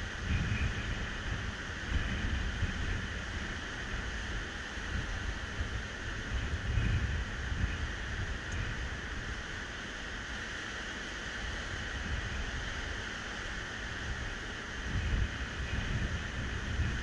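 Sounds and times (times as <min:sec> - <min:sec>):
wind buffeting microphone: 0:00.0 - 0:09.7, 0:11.4 - 0:17.0.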